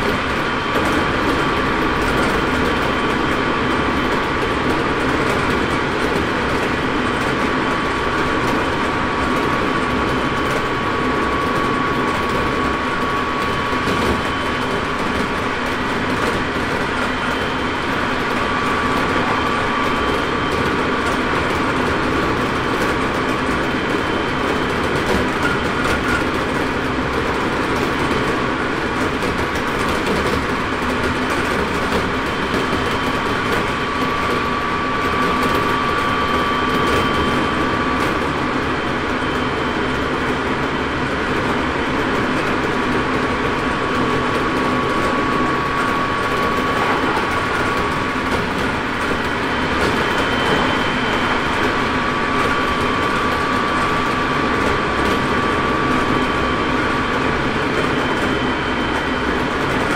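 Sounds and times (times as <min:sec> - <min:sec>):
steady motor whine: 0:00.0 - 0:59.9
train wheel and rail noise: 0:00.0 - 0:59.9.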